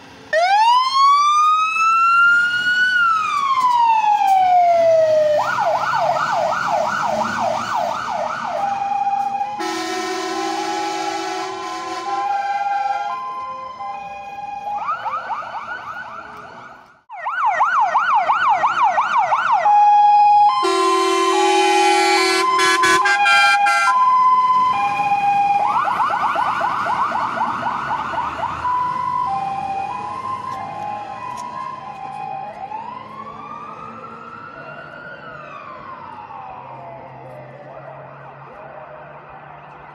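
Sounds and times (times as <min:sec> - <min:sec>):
fire engine siren: 0:00.0 - 0:39.9
horn blast: 0:09.5 - 0:13.2, 0:20.6 - 0:23.9.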